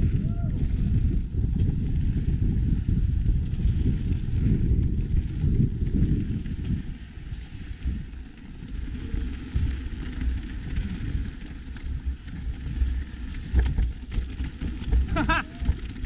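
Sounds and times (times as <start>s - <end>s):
wind buffeting microphone: 0.0s - 16.0s
tyres rumbling on dirt: 7.6s - 16.0s
bike knocking over bumps: 9.5s - 16.0s.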